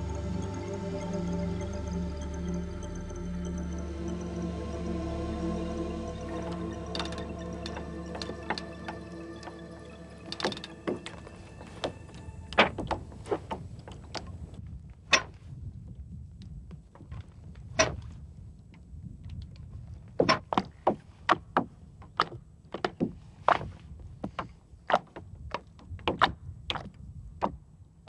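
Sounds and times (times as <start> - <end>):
oars knocking in oarlocks: 20.1 - 27.7.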